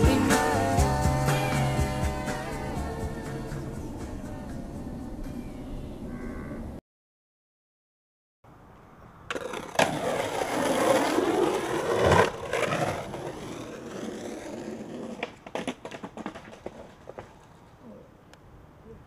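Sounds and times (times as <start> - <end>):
skateboard wheels rolling on asphalt: 9.2 - 17.8
skateboard clacks and scrapes: 9.3 - 17.6.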